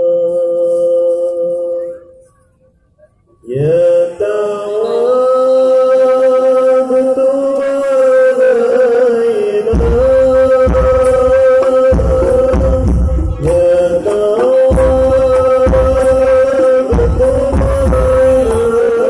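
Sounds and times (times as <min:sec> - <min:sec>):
ornamented vocal melody over pa: 0:03.1 - 0:19.0
hand drums: 0:09.8 - 0:18.9.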